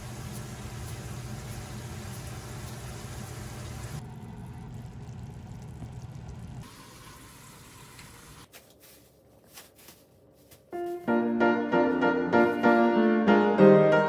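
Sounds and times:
stovetop cooking hum and hiss: 0.0 - 10.0.

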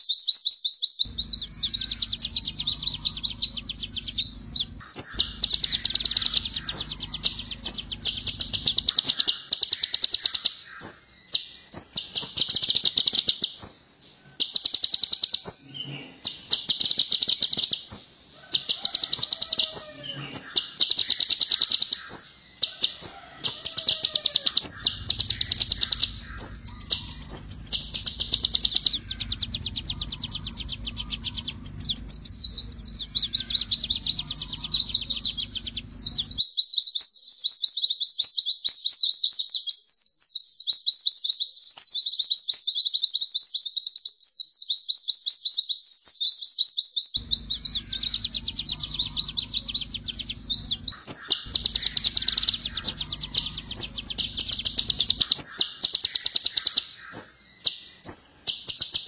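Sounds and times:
low hum: 1.1 - 9.5, 22.4 - 36.5, 47.2 - 55.9
bird chattering trills: 1.1 - 36.5, 47.2 - 59.0.

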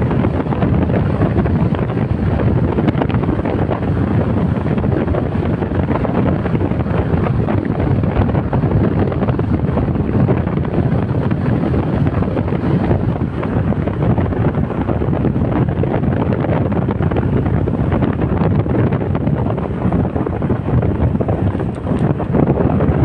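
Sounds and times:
road noise: 0.0 - 23.0
wind buffeting microphone: 0.0 - 23.0.

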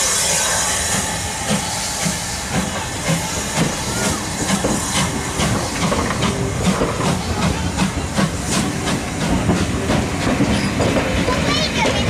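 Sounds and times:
hiss of steam: 0.0 - 12.0
steam train chuffing: 0.0 - 12.0.

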